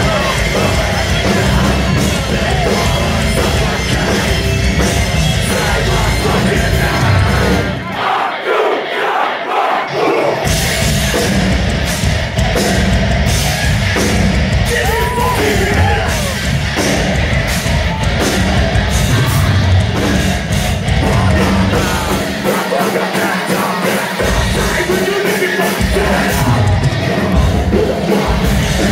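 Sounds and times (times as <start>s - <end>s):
live metalcore band: 0.0s - 28.9s
screamed vocals: 14.7s - 16.4s.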